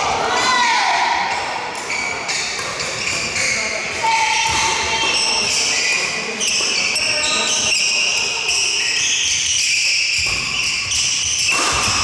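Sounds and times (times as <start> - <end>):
shoes squeaking on wooden floor: 4.9 - 12.0.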